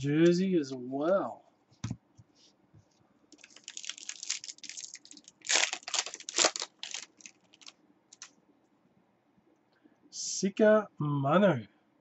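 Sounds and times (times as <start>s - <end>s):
trading cards rustling: 3.4s - 8.3s.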